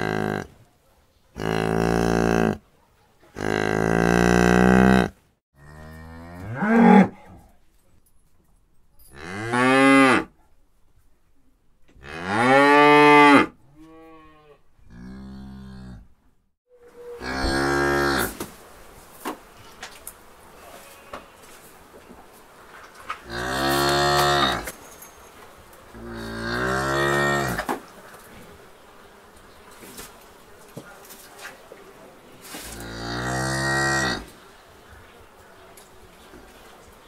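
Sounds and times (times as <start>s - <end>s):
cattle mooing: 0.0s - 0.5s, 1.4s - 2.6s, 3.4s - 7.2s, 12.0s - 16.1s, 17.0s - 18.4s, 23.2s - 24.7s, 26.0s - 27.7s, 32.8s - 34.3s.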